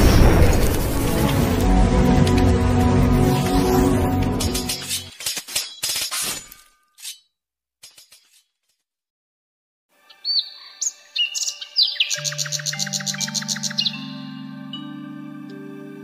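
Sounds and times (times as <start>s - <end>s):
electronic music: 0.8s - 5.1s
glassy clinks and crashes: 4.6s - 8.5s
birds chirping: 10.1s - 15.2s.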